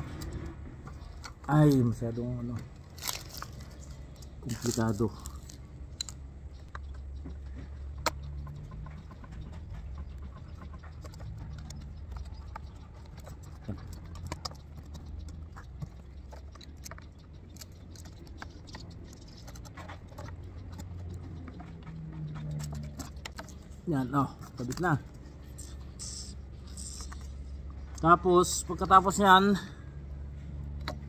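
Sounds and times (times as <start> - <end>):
low steady rumble: 0.0 - 31.0
metallic clicks and taps: 5.2 - 23.8.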